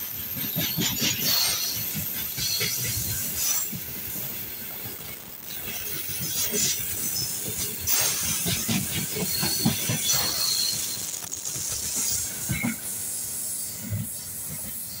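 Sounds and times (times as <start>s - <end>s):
train wheels clattering over joints: 0.0s - 15.0s
rushing hiss: 0.2s - 15.0s
high wheel squeals: 0.4s - 3.7s, 7.0s - 11.2s.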